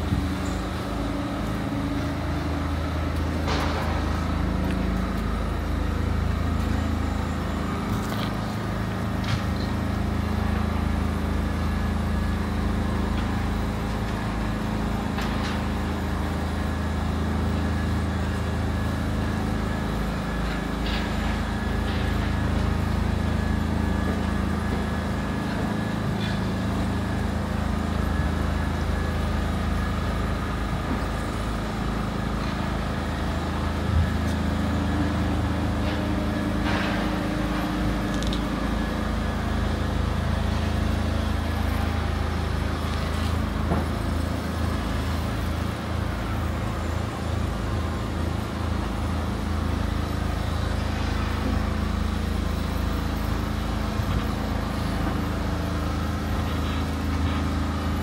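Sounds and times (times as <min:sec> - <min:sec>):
machinery humming: 0:00.0 - 0:58.0.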